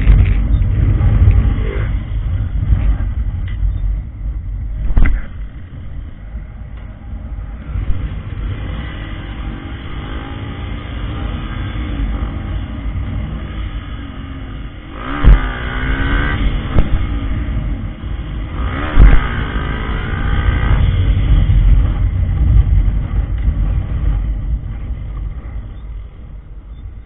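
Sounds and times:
motorcycle engine revving: 0.0 - 3.6, 7.1 - 26.0
wind rumble on microphone: 0.0 - 27.0
sharp thump: 16.7 - 17.1.

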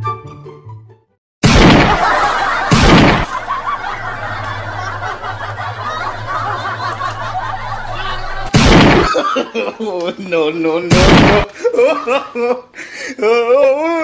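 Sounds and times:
loud burst: 1.4 - 3.4, 8.4 - 9.1, 10.9 - 11.5
people laughing and snickering: 1.8 - 10.4, 11.0 - 13.7.

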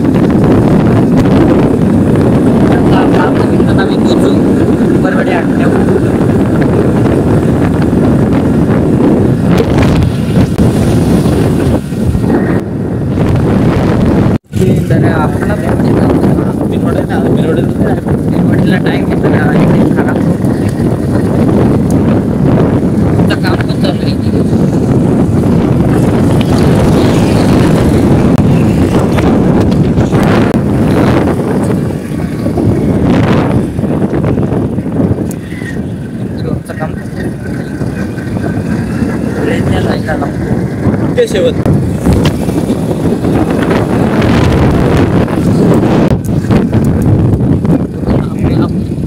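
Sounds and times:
wind buffeting microphone: 0.0 - 49.0
motorcycle engine: 18.0 - 48.1.

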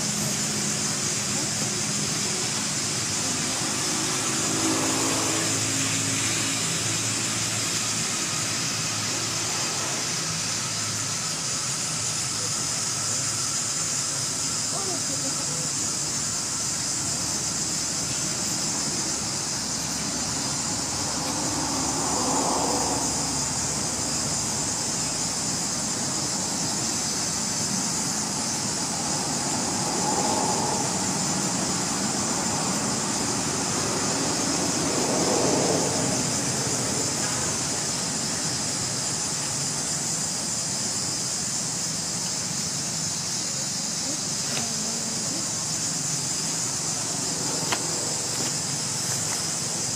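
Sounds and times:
high-pitched insect drone: 0.0 - 49.9.

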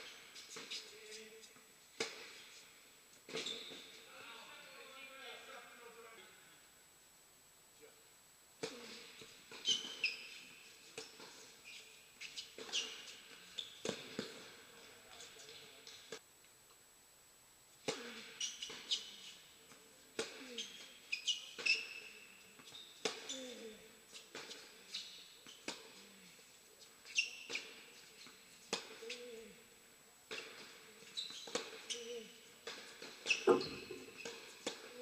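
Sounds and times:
sneaker squeaks on court: 3.3 - 4.0, 8.7 - 14.5, 17.9 - 19.4, 20.2 - 23.7, 24.4 - 26.1, 27.0 - 29.4, 30.3 - 35.0
racket hitting tennis ball: 12.4 - 14.6, 32.6 - 35.0.

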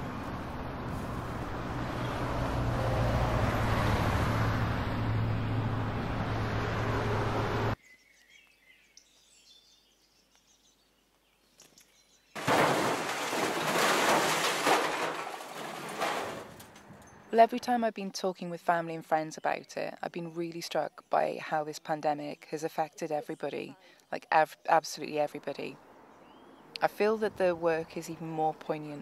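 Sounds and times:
car cabin road and engine noise: 0.0 - 7.8.

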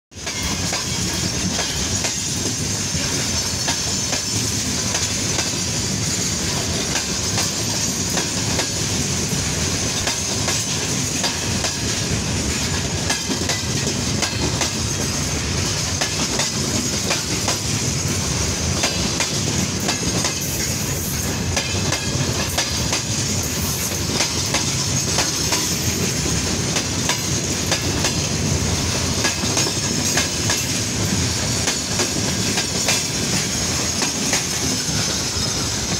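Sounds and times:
train wheels clacking over rail joint: 0.2 - 35.9.

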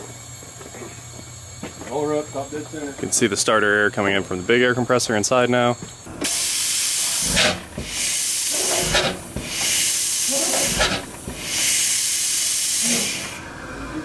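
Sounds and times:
compressed air hissing blasts: 6.1 - 13.5.

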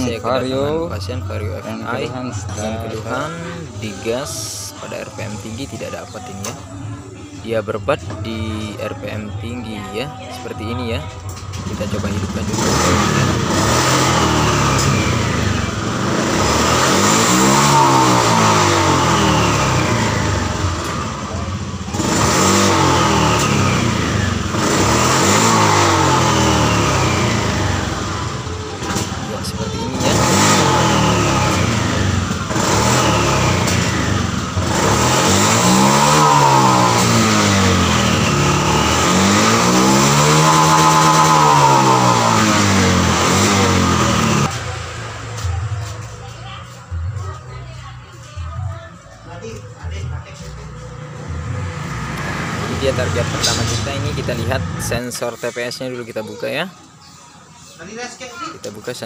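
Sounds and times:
scooter engine revving and stuttering: 0.0 - 59.0.

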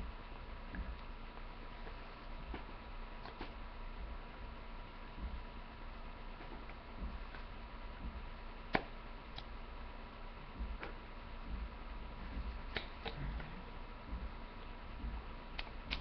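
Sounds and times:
soft low knocks: 0.0 - 1.0, 2.4 - 8.4, 10.4 - 16.0
faint high whine and hum: 0.0 - 16.0
sharp clicks: 12.7 - 13.2.

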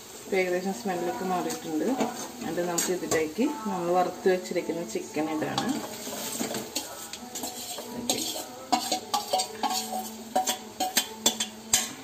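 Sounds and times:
metal spoon clinking on bowl: 6.8 - 12.0.

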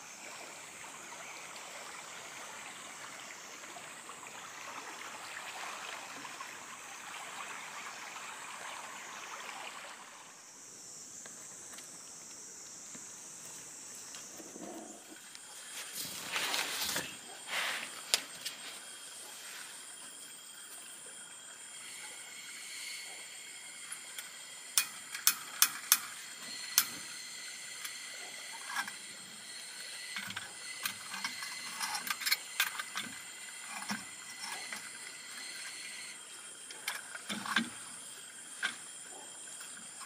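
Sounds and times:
high-pitched whine: 15.4 - 36.2.

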